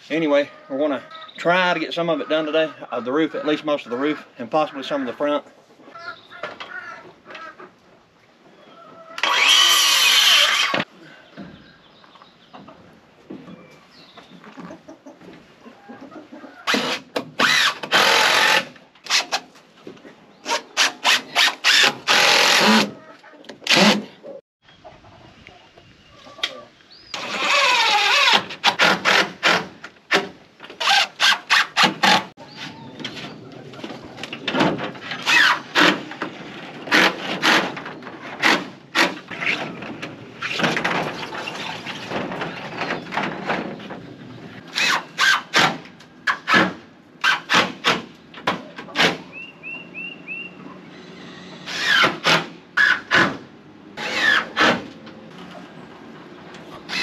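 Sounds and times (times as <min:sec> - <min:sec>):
chickens clucking: 0:00.0 - 0:09.3, 0:10.9 - 0:16.9, 0:22.9 - 0:27.2, 0:32.4 - 0:37.1, 0:48.1 - 0:51.6, 0:54.9 - 0:57.0
circular saw cutting wood: 0:09.2 - 0:10.9, 0:20.5 - 0:23.0, 0:27.1 - 0:29.7, 0:54.0 - 0:54.9
power drill driving screws: 0:09.2 - 0:10.9, 0:16.7 - 0:19.4, 0:20.5 - 0:22.9, 0:23.7 - 0:24.0, 0:27.1 - 0:30.2, 0:30.8 - 0:32.3, 0:35.2 - 0:36.0, 0:44.7 - 0:45.6, 0:51.6 - 0:53.1, 0:54.0 - 0:54.8.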